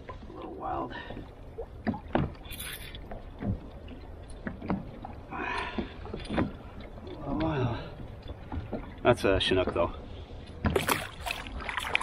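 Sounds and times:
water washing against hull: 0.0 - 12.0.

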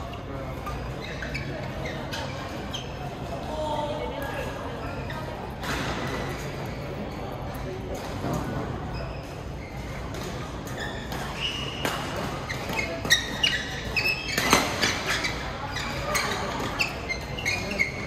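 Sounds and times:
shoe squeaks on court: 0.0 - 3.2, 8.2 - 18.0.

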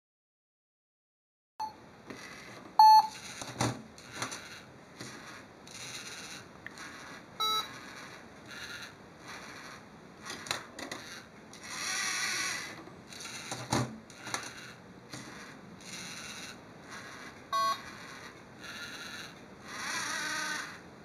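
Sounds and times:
short electronic beep: 2.8 - 3.2, 17.6 - 17.8
servo motors whirring: 4.1 - 13.5, 15.2 - 20.8.

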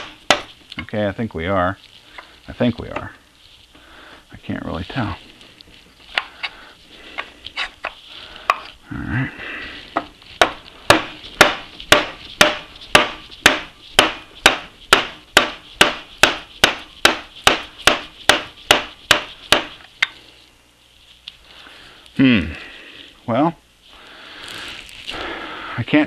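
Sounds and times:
rubber mallet striking metal spindle: 0.0 - 0.5, 10.4 - 19.8.

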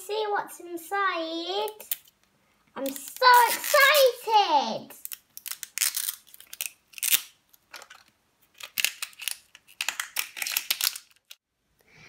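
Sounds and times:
plastic wrapper crinkling and tearing: 2.8 - 4.2, 5.0 - 11.4.

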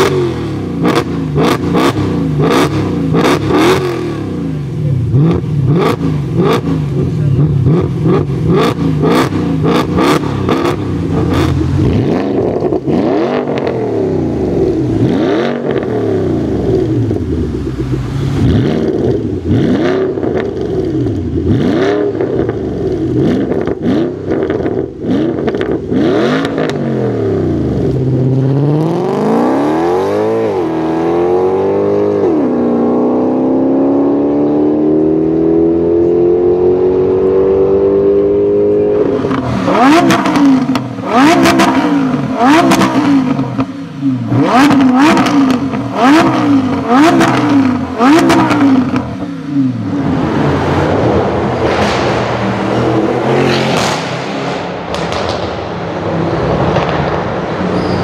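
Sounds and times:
car accelerating hard with upshifts: 0.0 - 57.0
engine popping and crackling: 4.8 - 28.4, 39.1 - 58.0
engine rev blips: 36.4 - 58.0.

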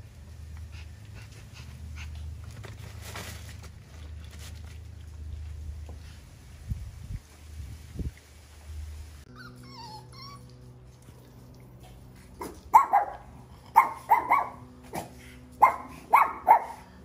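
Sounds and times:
puppy barking in high yaps: 12.4 - 15.0, 15.6 - 16.9.

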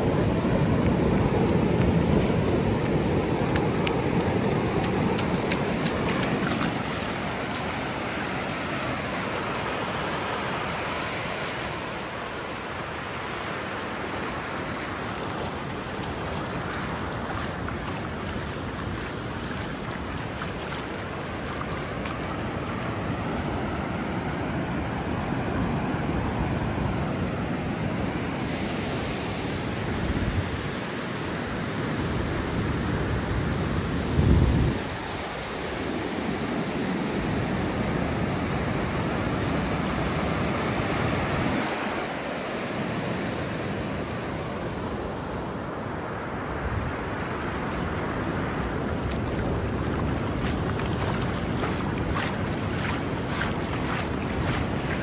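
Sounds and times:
ocean surf: 0.0 - 34.1, 34.8 - 55.0
wind buffeting microphone: 46.5 - 55.0.

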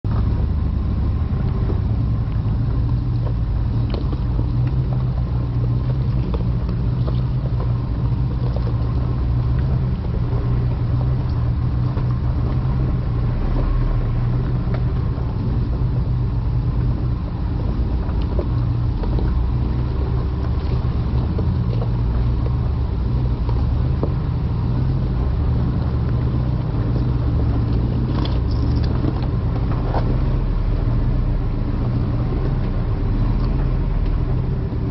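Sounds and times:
truck engine running at low revs: 0.0 - 34.9
faint clicks of stones under tyres: 1.3 - 34.9.

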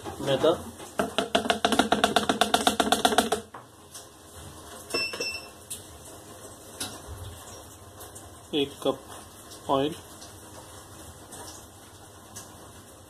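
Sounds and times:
plastic tub rattling against bowl: 0.0 - 3.5.

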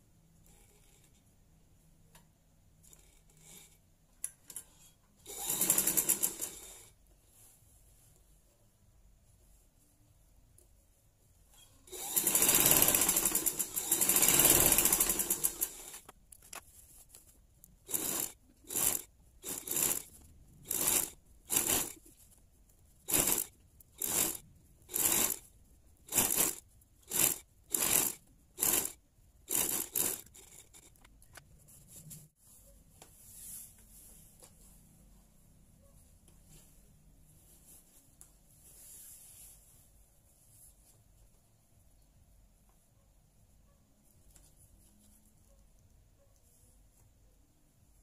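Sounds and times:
sewing machine stitching: 5.2 - 7.0, 11.6 - 16.1, 17.8 - 22.1, 23.1 - 25.5, 26.1 - 31.1.

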